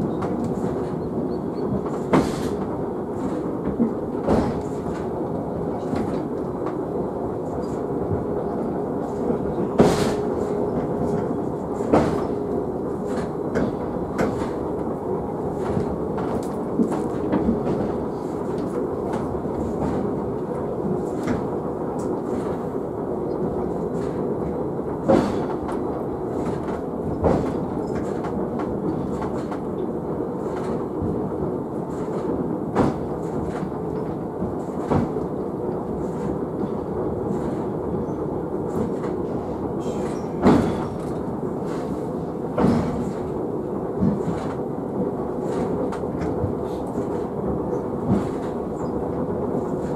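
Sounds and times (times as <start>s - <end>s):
cable car wheels rumbling: 0.0s - 49.9s
sharp knocks and clacks: 26.4s - 29.6s.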